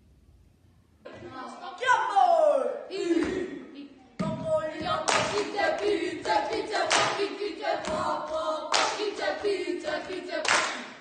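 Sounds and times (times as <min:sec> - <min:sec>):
children singing together: 0:04.2 - 0:11.0
sharp hand claps: 0:05.1 - 0:05.6, 0:06.2 - 0:08.0, 0:08.7 - 0:11.0.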